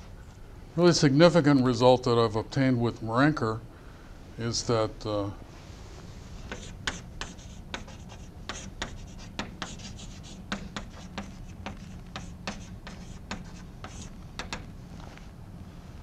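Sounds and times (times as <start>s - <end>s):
steady low hum: 0.0s - 16.0s
chalk tapping and scraping: 6.4s - 15.2s.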